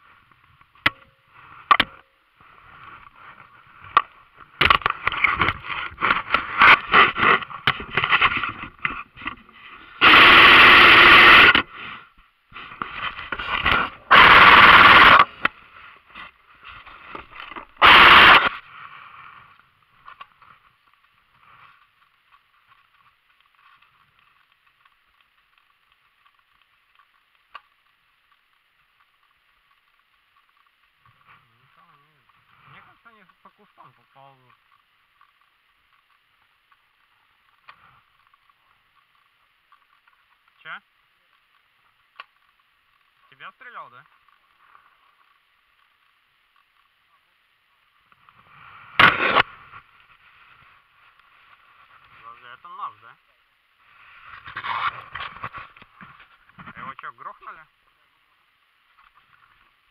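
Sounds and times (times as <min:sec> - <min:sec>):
faint steady hiss: 0:00.0 - 0:59.9
airsoft gun shots: 0:49.0 - 0:49.5.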